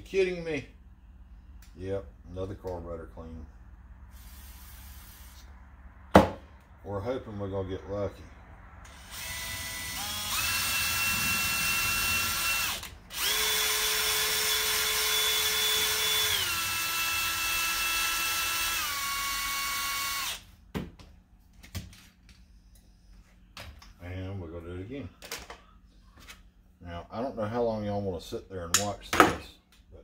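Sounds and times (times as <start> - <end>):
cordless drill whining: 8.8 - 20.5.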